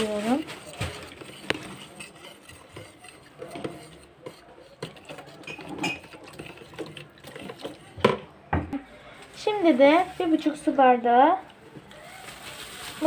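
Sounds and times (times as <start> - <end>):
whisk swishing through batter: 0.0 - 8.2
whisk clicking against container: 0.1 - 8.2.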